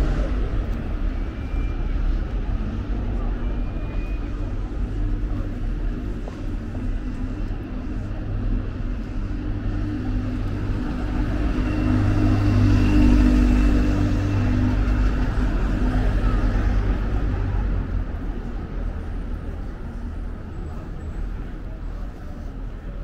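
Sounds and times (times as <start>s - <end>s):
bus engine passing: 0.0s - 23.0s
street traffic hum: 0.0s - 23.0s.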